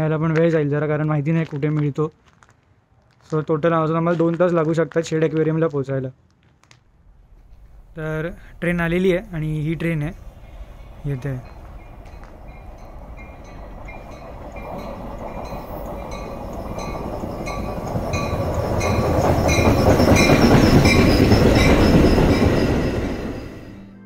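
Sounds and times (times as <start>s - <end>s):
train rumbling on rails: 7.1s - 24.0s
bell dinging: 10.8s - 23.8s.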